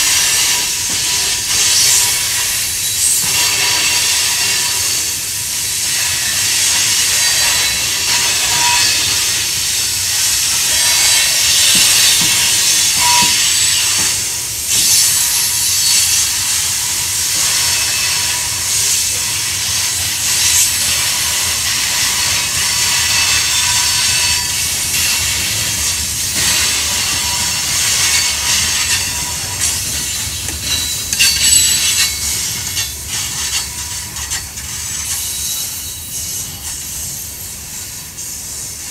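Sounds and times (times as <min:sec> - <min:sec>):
low train rumble: 0:00.0 - 0:38.9
steel wheels squealing on rails: 0:00.0 - 0:38.9.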